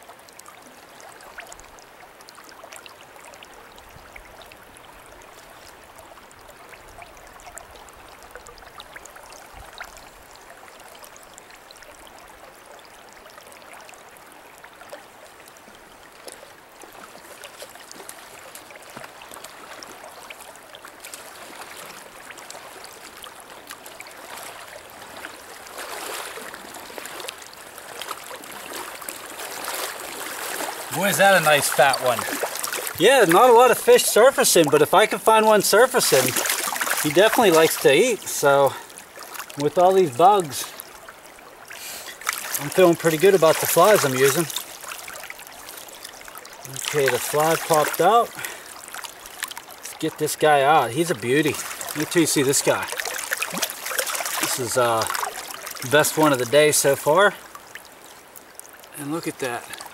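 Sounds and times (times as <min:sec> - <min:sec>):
water splashing: 0:00.0 - 0:59.9
river rushing over a riffle: 0:16.8 - 0:59.9.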